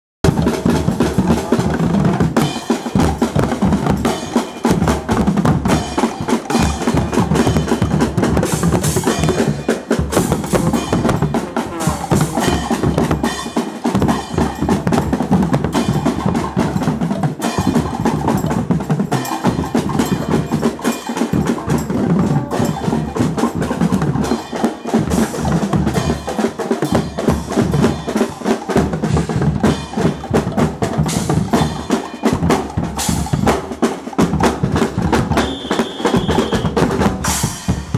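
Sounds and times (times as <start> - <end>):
bass drum: 0.2 - 20.7, 21.3 - 24.4
snare drums: 0.2 - 37.9.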